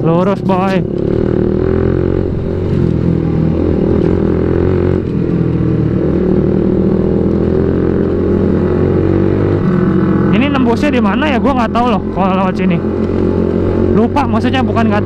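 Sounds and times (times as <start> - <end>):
motorcycle engine running: 0.0 - 15.0.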